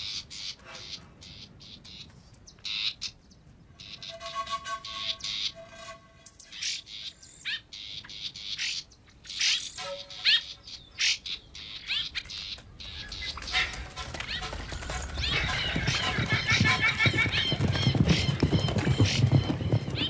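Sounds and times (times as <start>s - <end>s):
bird chirps and squawks: 3.8s - 16.6s.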